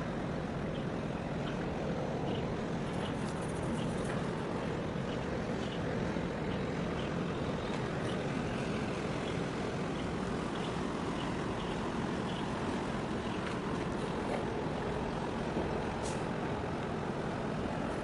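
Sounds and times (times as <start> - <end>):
low rumble of distant engines: 0.0 - 18.0
water noise: 0.0 - 18.0
wind: 0.0 - 18.0.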